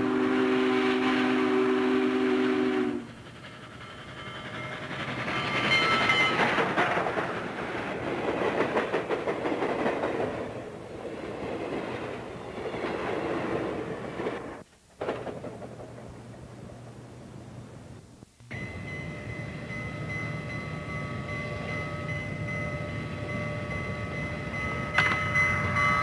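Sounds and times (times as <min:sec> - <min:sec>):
steam locomotive chime whistle: 0:00.0 - 0:06.5, 0:18.5 - 0:26.0
train rushing past: 0:00.0 - 0:17.1, 0:18.5 - 0:26.0
wheels clattering on rails: 0:03.0 - 0:16.9, 0:18.5 - 0:26.0.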